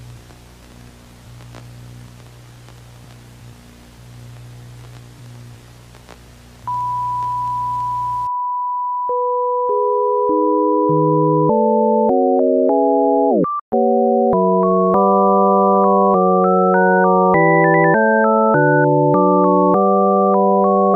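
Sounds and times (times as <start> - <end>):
faint crackles: 0.0 - 8.2
low electrical hum: 0.0 - 8.3
television static hiss: 0.0 - 8.3.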